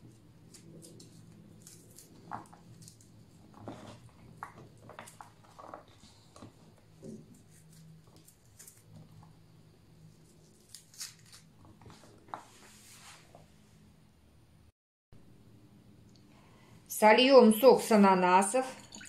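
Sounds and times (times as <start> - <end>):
onion pieces separated by hand: 10.2 - 11.6.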